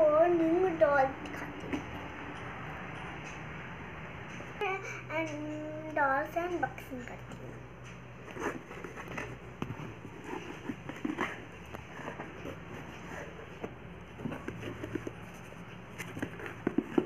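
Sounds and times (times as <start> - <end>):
short scratches and taps: 7.8 - 17.0.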